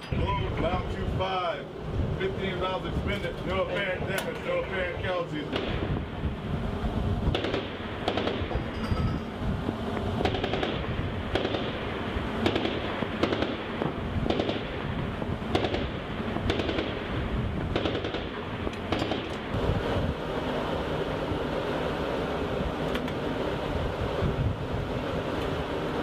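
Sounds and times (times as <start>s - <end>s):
steady background noise: 0.0s - 26.0s
cannon and machine guns firing: 5.4s - 6.3s, 7.2s - 8.7s, 10.2s - 19.6s.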